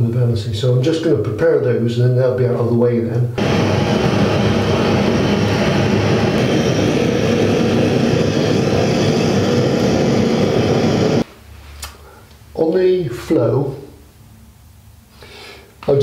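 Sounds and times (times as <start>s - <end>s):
gas blowtorch burning: 3.4s - 11.3s.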